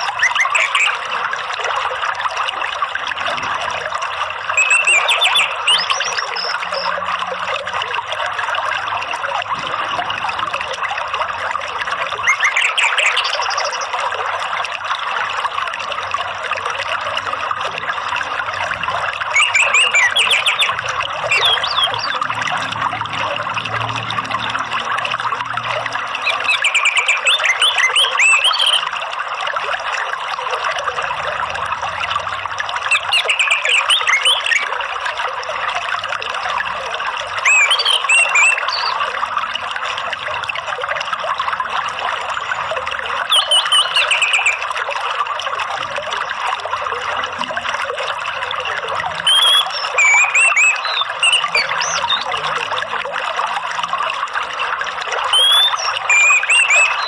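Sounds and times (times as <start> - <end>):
trickling water: 0.0 - 57.0
songbird chirping: 4.6 - 7.0, 19.4 - 22.3, 26.2 - 28.9, 32.9 - 34.7, 37.4 - 39.0, 43.3 - 44.6, 49.3 - 52.4, 55.3 - 57.0.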